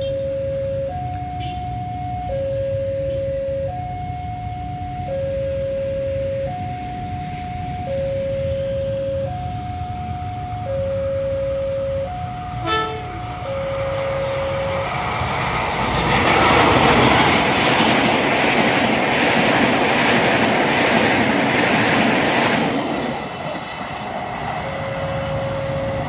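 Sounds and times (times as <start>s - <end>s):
level-crossing warning alarm: 0.0s - 26.0s
train wheels clattering on rails: 14.6s - 26.0s.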